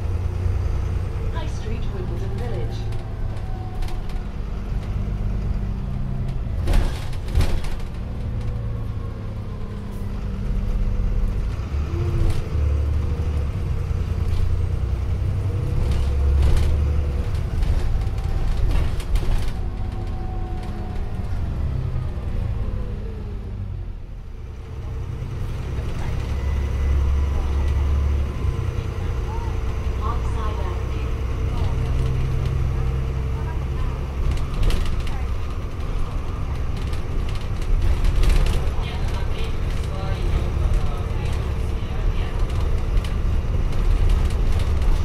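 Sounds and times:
bus diesel engine rumble: 0:00.0 - 0:45.0
bus body knocks and rattles: 0:06.1 - 0:08.8, 0:15.6 - 0:21.2, 0:34.1 - 0:45.0.

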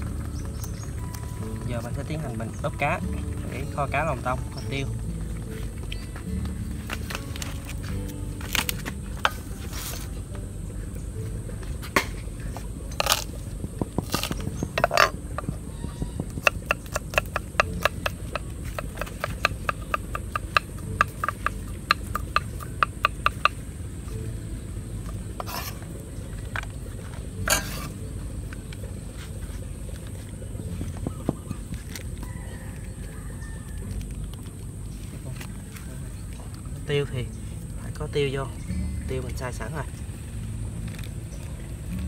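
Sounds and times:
steady low rumble: 0:00.0 - 0:32.2, 0:33.7 - 0:42.0.

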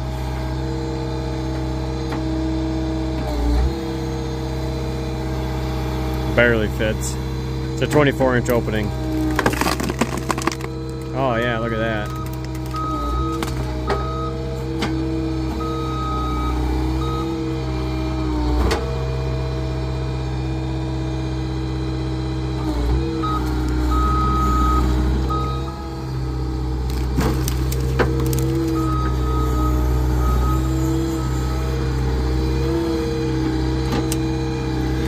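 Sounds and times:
hydraulic splitter engine running: 0:00.0 - 0:35.0
wood cracking: 0:09.0 - 0:11.2, 0:11.9 - 0:13.7, 0:26.8 - 0:29.0.

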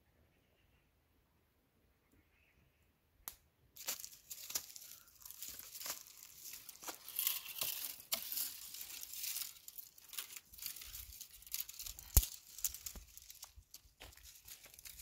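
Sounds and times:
branch cracking: 0:03.3 - 0:15.0
dry leaves and twigs crackling: 0:03.8 - 0:15.0.

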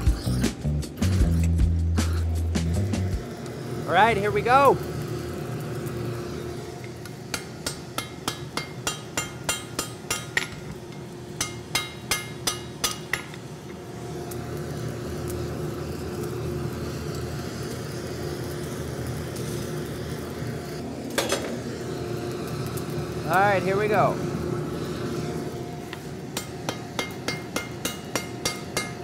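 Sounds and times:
hammer striking metal on anvil: 0:07.3 - 0:13.4, 0:26.3 - 0:29.0
forge rushing hum: 0:13.7 - 0:28.9.

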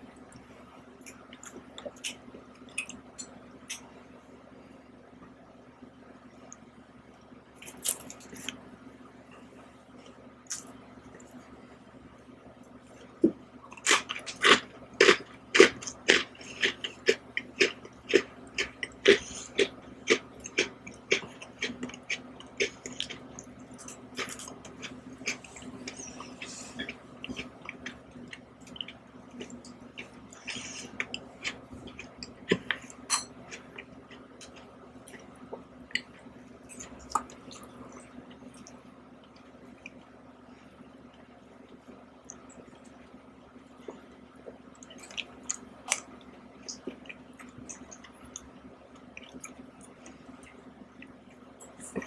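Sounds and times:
crisp crunching while eating: 0:07.6 - 0:08.6, 0:13.7 - 0:35.6.

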